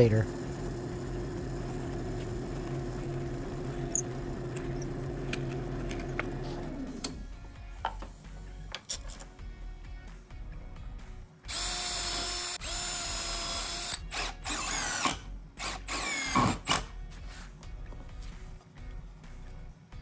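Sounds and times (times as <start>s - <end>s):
cordless drill whine: 0.0s - 7.1s, 11.5s - 16.9s.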